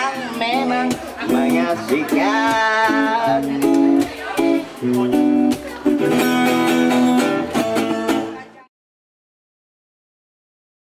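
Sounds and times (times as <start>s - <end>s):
acoustic guitar strumming: 0.0s - 8.7s.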